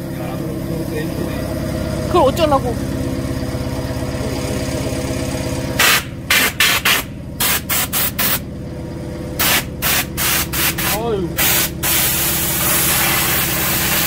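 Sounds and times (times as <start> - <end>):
motor running steadily: 0.0 - 14.0
compressed air blasts: 5.8 - 8.4, 9.4 - 14.0.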